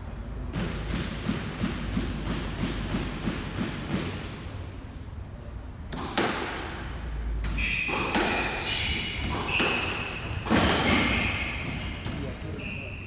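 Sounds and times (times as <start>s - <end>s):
racket striking squash ball: 0.4s - 4.5s, 5.9s - 12.3s
ball thudding against walls: 7.4s - 11.3s
shoes squeaking on wooden floor: 7.4s - 13.0s.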